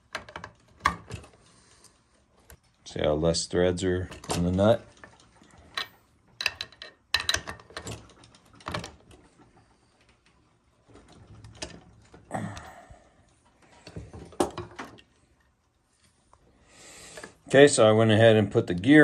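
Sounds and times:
wrench clicking and clanking on metal: 5.7s - 8.8s.

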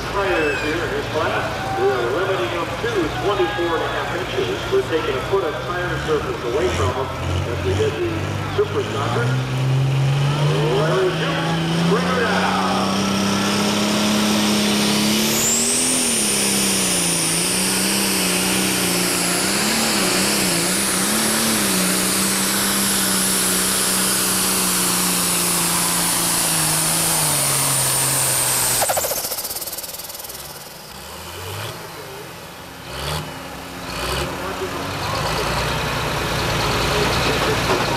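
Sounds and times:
diesel tractor engine at full throttle: 0.0s - 37.9s
turbo whistling: 27.5s - 31.0s.

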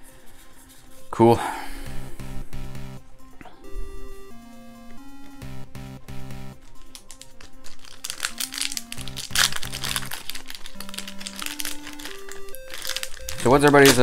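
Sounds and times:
eight-bit lofi music: 1.2s - 14.0s
foil pack crinkling: 6.6s - 14.0s.

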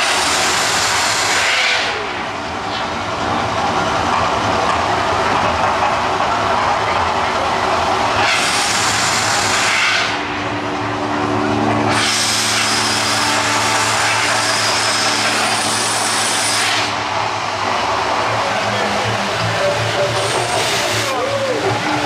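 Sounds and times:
low steady tones: 10.1s - 22.0s.

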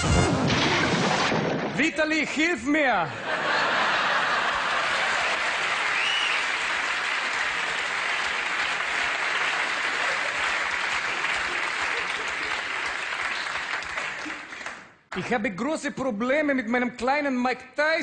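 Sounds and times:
audience applauding: 3.4s - 15.3s.

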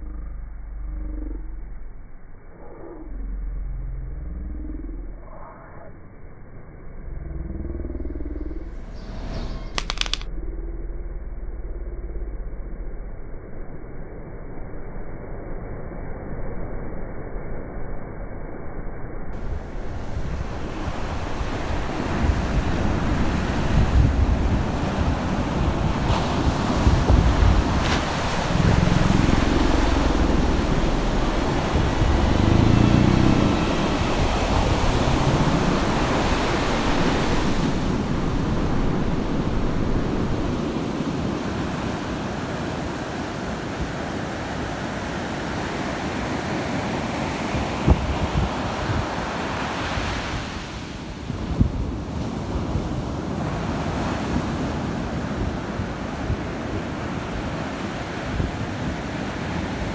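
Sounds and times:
low wavering sound: 0.0s - 25.6s, 26.9s - 40.6s
wind buffeting microphone: 19.4s - 45.7s, 46.7s - 59.9s
ocean surf washing: 19.4s - 59.9s.

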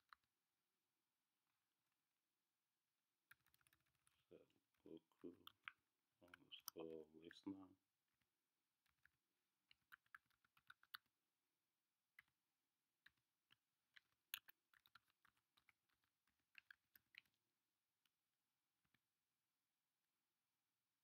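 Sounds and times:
faint keyboard typing: 3.3s - 7.6s, 8.2s - 11.3s, 12.1s - 18.1s.

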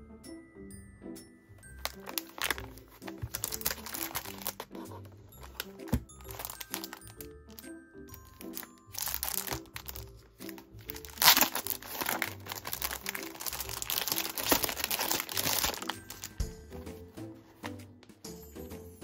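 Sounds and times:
background music: 0.0s - 19.0s
plastic packaging crinkling: 1.8s - 16.4s.

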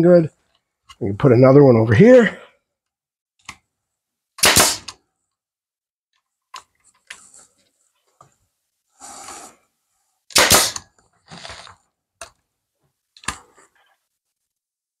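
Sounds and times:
nail gun firing: 4.4s - 5.0s, 10.3s - 10.9s.

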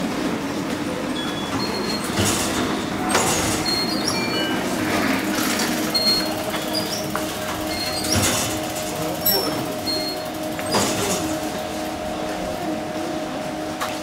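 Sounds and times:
busy station hum: 0.0s - 14.0s
card reader beeps: 1.1s - 8.3s.

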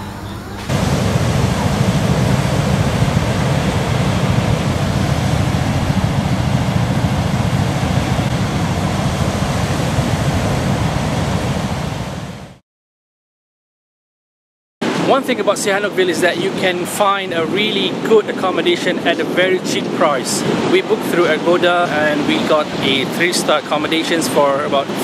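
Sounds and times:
surf washing onto beach: 0.7s - 12.6s, 14.8s - 25.0s
wind buffeting microphone: 0.7s - 12.6s.

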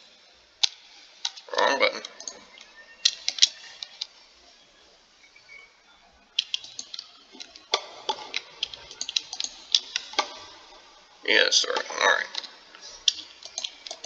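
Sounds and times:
mouse and keyboard clicks: 2.0s - 4.1s, 6.4s - 10.5s, 11.7s - 14.0s.

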